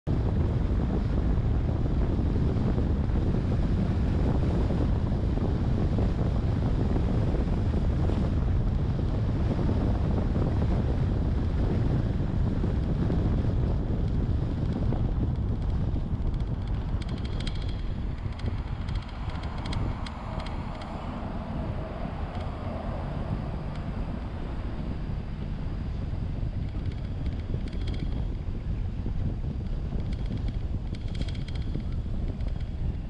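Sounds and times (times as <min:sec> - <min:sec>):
road noise: 0:00.0 - 0:33.0
wind buffeting microphone: 0:00.0 - 0:33.0.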